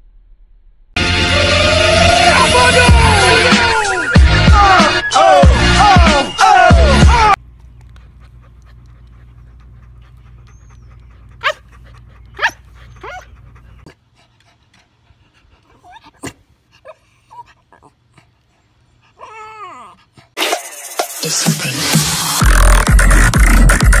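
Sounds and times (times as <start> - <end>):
loud electronic music: 1.0 - 7.4, 20.4 - 24.0
dog whining: 8.3 - 13.9, 15.7 - 18.3, 19.1 - 20.4
puppy barking high: 11.4 - 11.7, 12.4 - 13.3.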